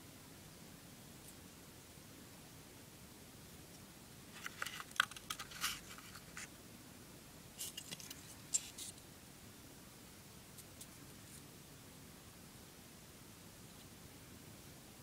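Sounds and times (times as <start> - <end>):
steady hiss: 0.0 - 15.0
handling clicks and scratches: 4.3 - 6.5, 7.6 - 9.0.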